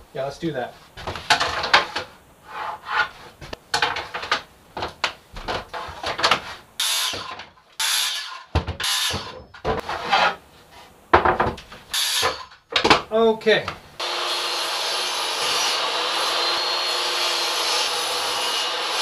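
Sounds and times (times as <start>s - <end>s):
boards and tools clattering: 1.0s - 10.4s, 11.1s - 13.1s
circular saw cutting wood: 6.8s - 9.2s, 14.0s - 19.0s.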